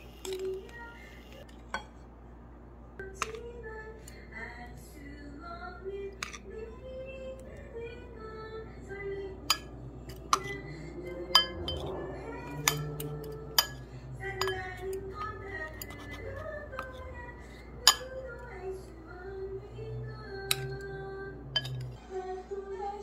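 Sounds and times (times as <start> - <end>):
pop song with singing: 3.0 - 23.0
metal utensil clinking on bowl: 9.5 - 10.6, 11.2 - 17.1, 17.8 - 18.4, 20.5 - 20.8, 21.5 - 22.0.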